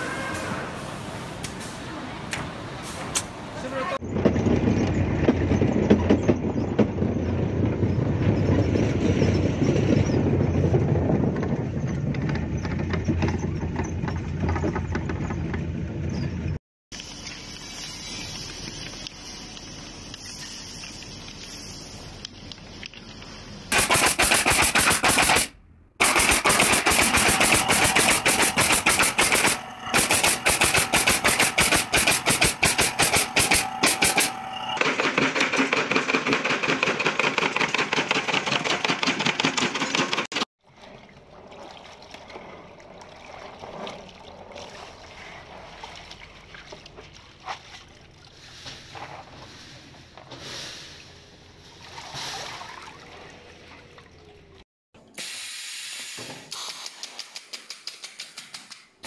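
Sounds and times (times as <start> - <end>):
machine rattling loudly: 23.7 - 40.3
water sloshing: 40.6 - 49.6, 51.0 - 54.6.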